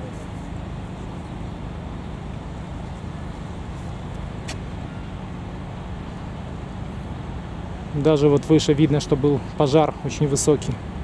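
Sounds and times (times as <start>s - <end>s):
low rumble of street traffic: 0.0s - 11.0s.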